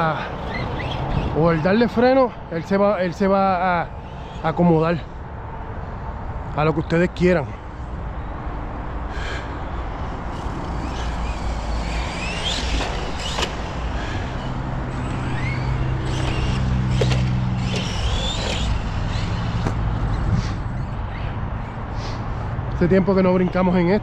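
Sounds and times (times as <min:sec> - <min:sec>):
electric motor whining: 0:10.1 - 0:21.0.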